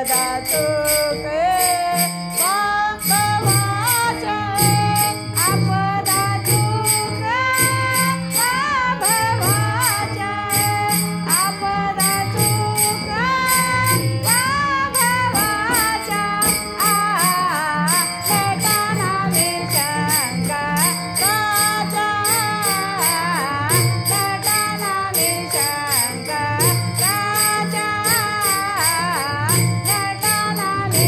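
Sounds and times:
jingling percussion: 0:00.0 - 0:31.0.

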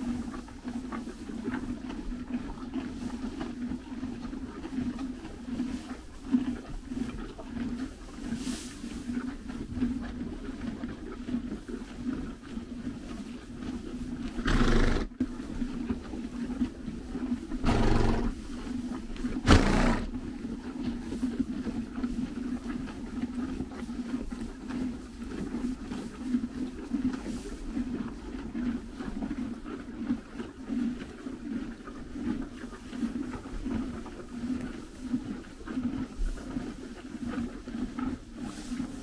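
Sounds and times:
horses chewing hay: 0:00.0 - 0:39.0
horse snorting: 0:14.2 - 0:15.4, 0:17.2 - 0:20.3.

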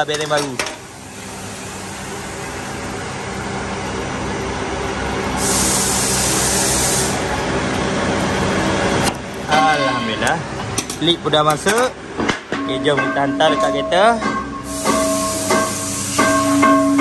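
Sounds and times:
loud hiss burst: 0:05.4 - 0:07.2, 0:14.7 - 0:16.6
machine humming: 0:11.9 - 0:17.0.

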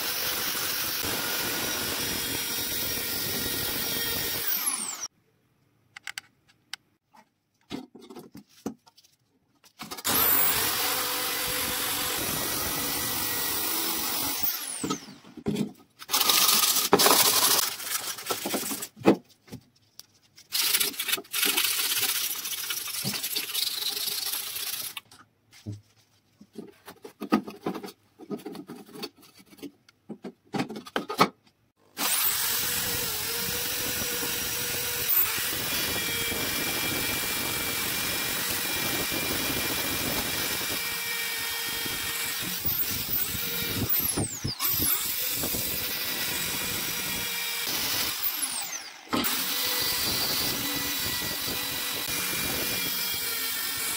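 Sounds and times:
drill with wire brush on metal: 0:00.0 - 0:05.1, 0:10.0 - 0:15.4, 0:16.0 - 0:18.9, 0:20.5 - 0:25.1, 0:31.9 - 0:53.9.

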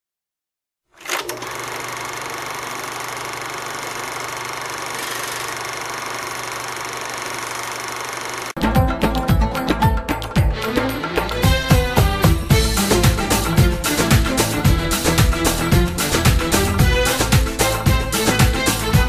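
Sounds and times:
film projector whirring: 0:00.9 - 0:08.6.

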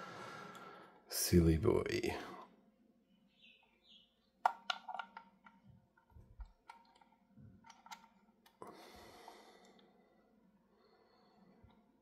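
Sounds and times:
small clicks and taps: 0:04.4 - 0:08.6.

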